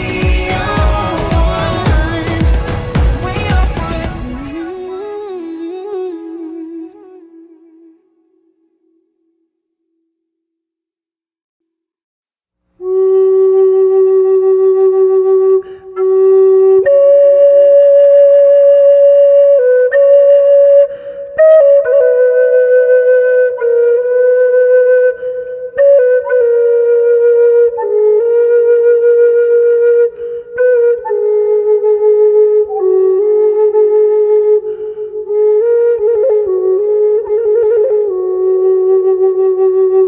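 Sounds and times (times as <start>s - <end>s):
flute playing slow melody: 0.0s - 3.6s, 12.8s - 40.0s.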